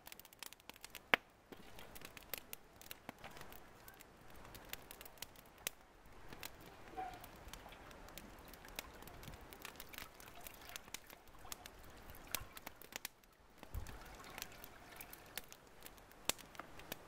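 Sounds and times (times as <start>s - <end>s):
wood fire crackling: 0.0s - 17.0s
water dribbling into a pot: 7.0s - 17.0s.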